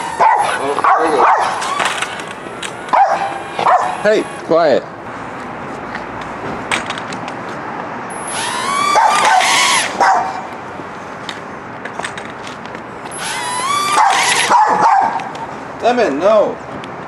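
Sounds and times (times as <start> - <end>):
dog yelping barks: 0.0 - 1.9, 2.9 - 4.1, 8.7 - 10.5, 13.7 - 15.3.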